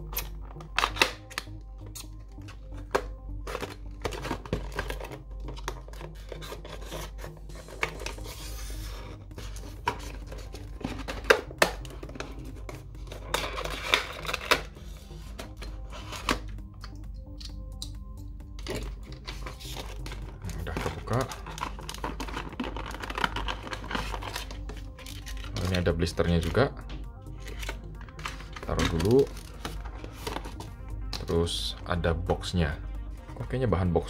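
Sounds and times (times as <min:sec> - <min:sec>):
plastic packaging crackling: 0:00.0 - 0:08.2, 0:09.4 - 0:14.8, 0:18.6 - 0:26.0, 0:27.3 - 0:30.7
soft background music: 0:00.0 - 0:34.0
knife scraping plastic: 0:03.5 - 0:14.7.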